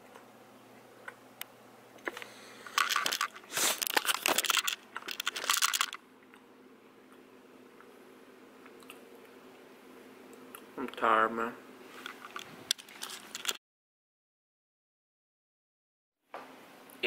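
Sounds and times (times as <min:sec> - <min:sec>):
faint steady hum: 0:00.0 - 0:13.6
camera rustling against clothing: 0:02.8 - 0:06.0, 0:11.9 - 0:13.6.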